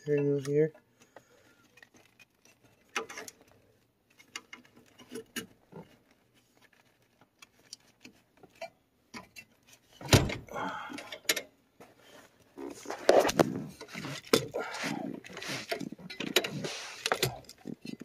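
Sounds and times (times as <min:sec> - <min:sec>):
light clicks and rustles: 0:00.4 - 0:10.1.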